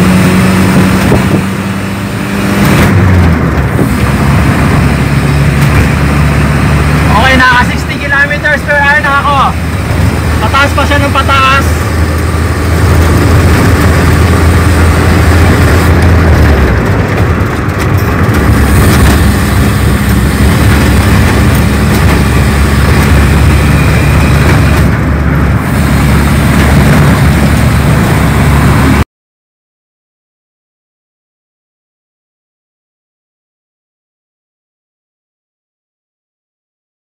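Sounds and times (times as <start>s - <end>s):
car engine pulling: 0.0s - 29.0s
road and wind noise: 0.0s - 29.1s.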